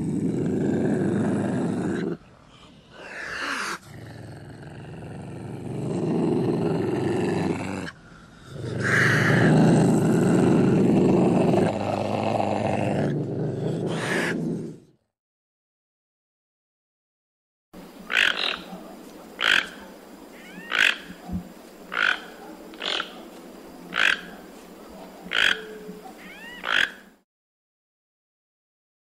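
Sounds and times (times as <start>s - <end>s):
wild cat growling: 0.0s - 2.2s, 3.0s - 15.0s.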